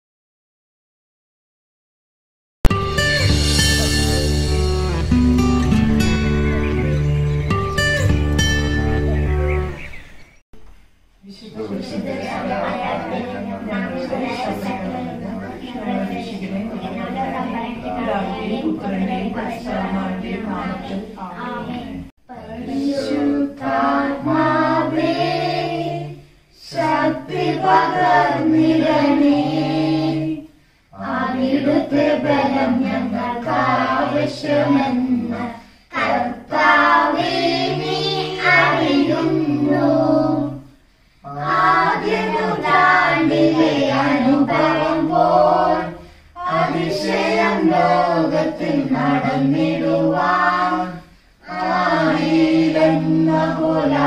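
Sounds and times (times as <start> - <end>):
family singing a hymn: 11.4 - 54.0.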